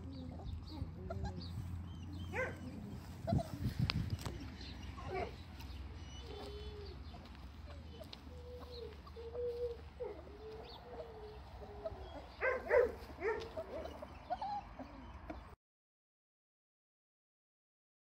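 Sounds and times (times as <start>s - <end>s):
puppies whimpering: 0.1s - 15.6s
puppy squeals: 13.6s - 15.2s.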